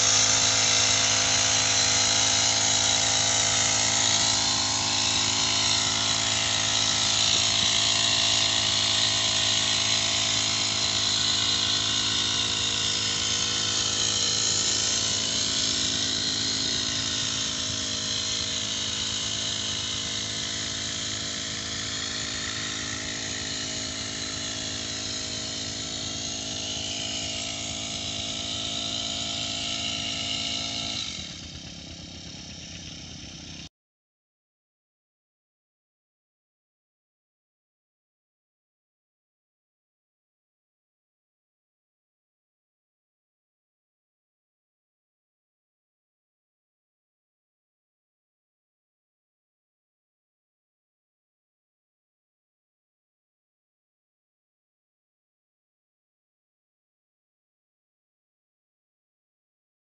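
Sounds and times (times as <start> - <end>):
power sprayer engine droning: 0.0 - 33.7.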